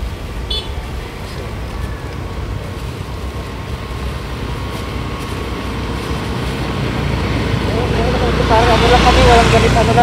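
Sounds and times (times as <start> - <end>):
faint engine hum: 0.0 - 10.0
motorcycle engine rumble: 0.0 - 10.0.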